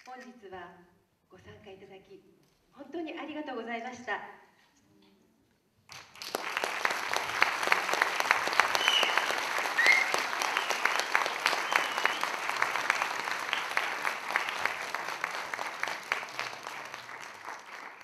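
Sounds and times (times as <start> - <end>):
audience applauding: 5.9 - 18.0.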